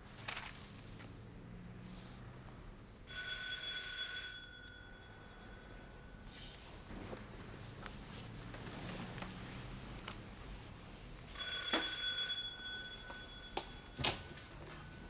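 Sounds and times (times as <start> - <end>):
bell ringing: 3.1 - 6.3, 11.3 - 15.0.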